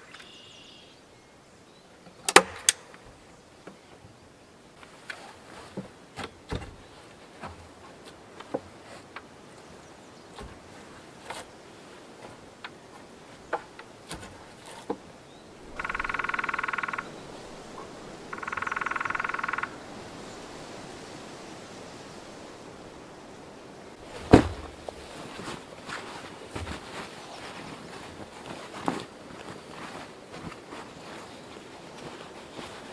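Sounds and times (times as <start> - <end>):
animal pulsing trills: 15.7 - 19.8
loud thump: 24.1 - 24.9.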